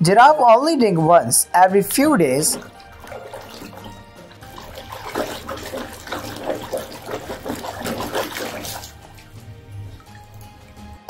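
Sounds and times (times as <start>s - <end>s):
water dribbling off a toy: 1.8s - 11.0s
water sloshing in a plastic tub: 1.8s - 11.0s.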